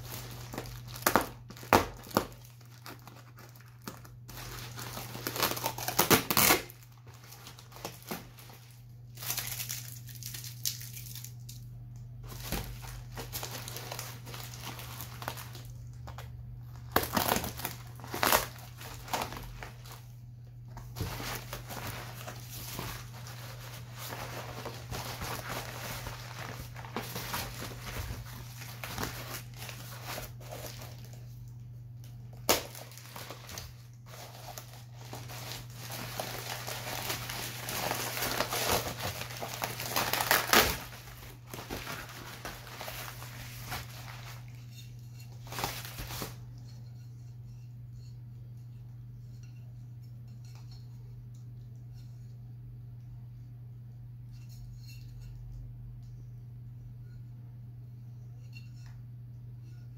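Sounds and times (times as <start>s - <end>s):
bubble wrap crinkling and tearing: 0.0s - 46.6s
knife cutting packing tape: 5.1s - 6.7s
steady low hum: 6.7s - 59.9s.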